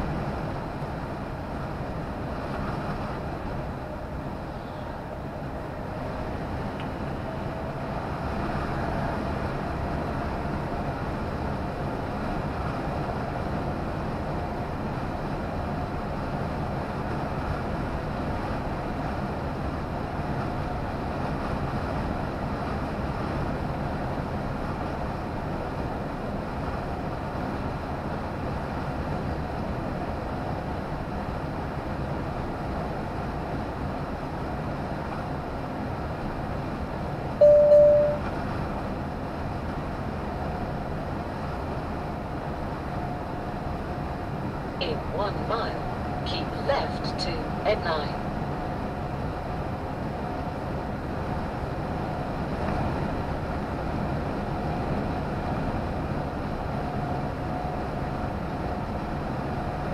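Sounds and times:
lorry engine and road noise: 0.0s - 59.9s
short loud beep: 37.4s - 38.3s
faint steady whine: 37.4s - 38.4s, 44.7s - 49.4s.

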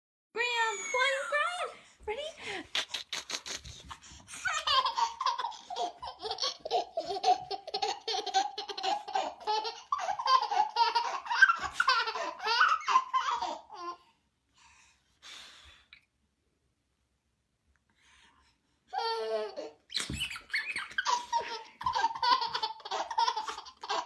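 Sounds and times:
baby laughing: 2.7s - 14.0s, 19.0s - 24.0s.

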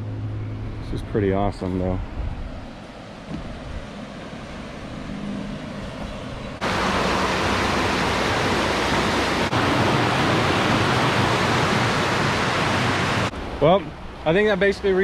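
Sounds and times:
water rushing over dam: 6.6s - 15.0s.

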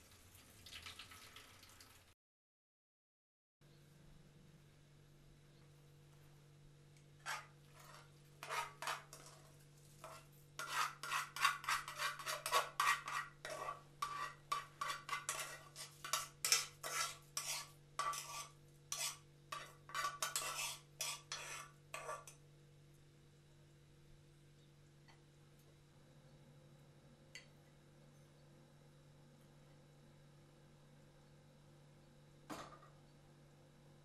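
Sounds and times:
utensil scraping metal pot: 7.2s - 22.4s.

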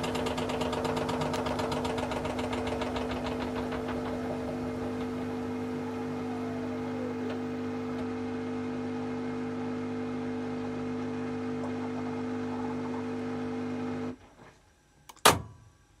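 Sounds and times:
washing machine humming: 0.0s - 14.2s.

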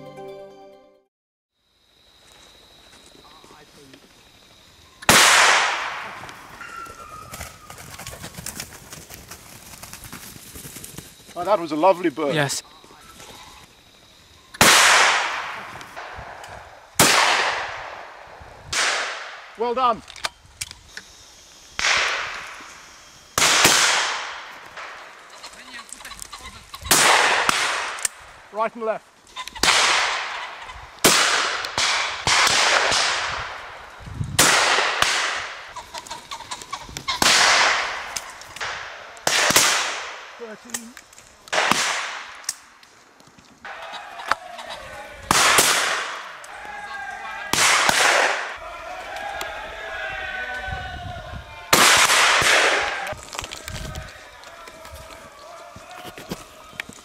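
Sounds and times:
shotgun shots with echo: 5.1s - 6.2s, 14.6s - 16.4s, 17.0s - 18.1s, 18.7s - 19.5s, 21.8s - 22.4s, 23.4s - 25.1s, 26.9s - 28.1s, 29.6s - 33.7s, 34.4s - 35.7s, 37.2s - 40.4s, 41.5s - 42.4s, 45.3s - 46.3s, 47.5s - 48.6s, 51.7s - 53.0s.

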